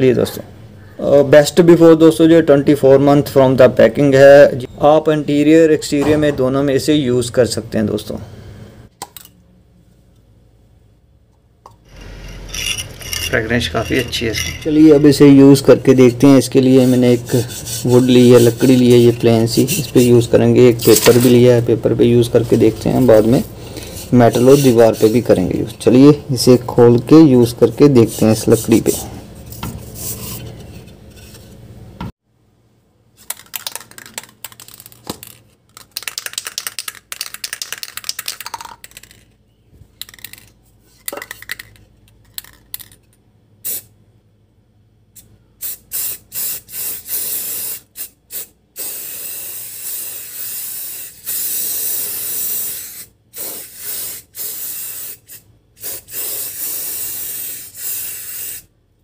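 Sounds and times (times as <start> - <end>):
spray can hissing: 45.6 - 58.6.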